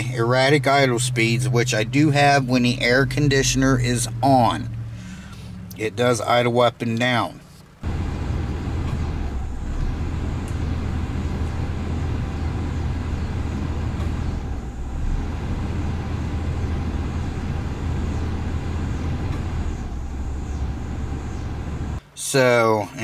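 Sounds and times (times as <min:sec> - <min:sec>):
truck engine idling: 0:07.8 - 0:22.0.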